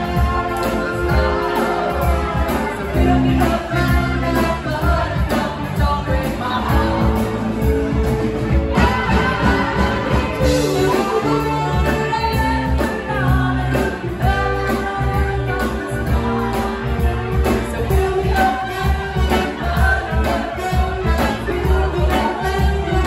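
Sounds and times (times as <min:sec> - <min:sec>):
electric bass: 0:00.0 - 0:23.0
person singing: 0:00.0 - 0:23.0
saxophones and trumpet: 0:00.0 - 0:23.0
steady drum beat: 0:00.0 - 0:23.0.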